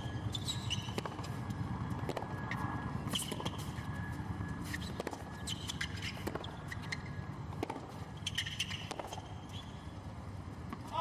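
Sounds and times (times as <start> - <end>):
shoes squeaking on court: 0.0 - 10.9
rackets striking tennis ball: 0.2 - 3.8, 4.7 - 9.5
ball bouncing: 0.8 - 3.7, 5.8 - 6.5, 7.5 - 9.4.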